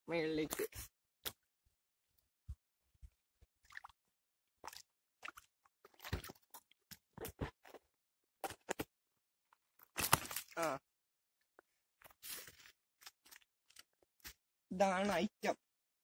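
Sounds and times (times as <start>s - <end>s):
fish splashing in water: 4.6s - 6.7s.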